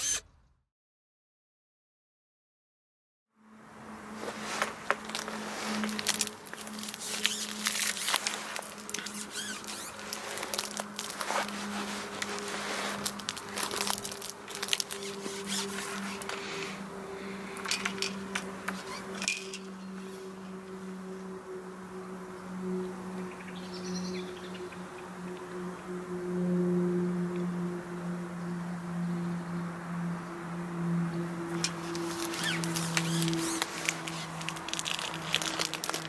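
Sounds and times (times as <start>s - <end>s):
crinkling and rustling: 4.1s - 16.8s, 17.5s - 19.7s, 31.5s - 36.0s.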